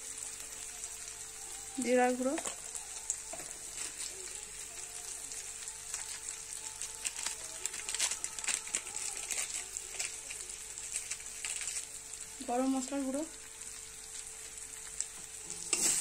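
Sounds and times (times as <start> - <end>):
food sizzling in oil: 0.0 - 16.0
sharp crackles and pops: 5.6 - 12.3.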